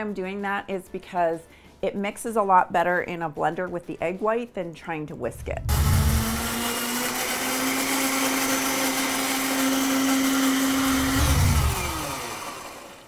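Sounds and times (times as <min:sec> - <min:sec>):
blender motor running: 0:05.6 - 0:13.0.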